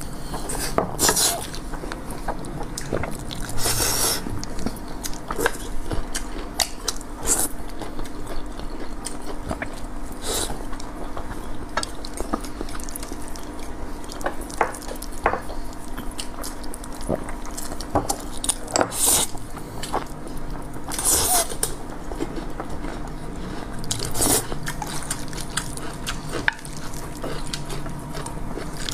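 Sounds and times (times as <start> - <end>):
low steady hum: 0.0 - 28.9
noodles slurped and chewed: 20.9 - 28.9.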